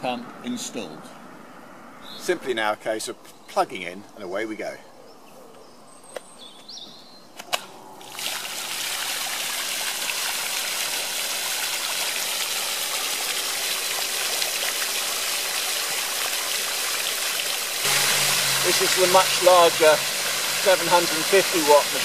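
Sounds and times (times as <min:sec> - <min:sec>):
fountain water splashing: 0:08.0 - 0:22.0.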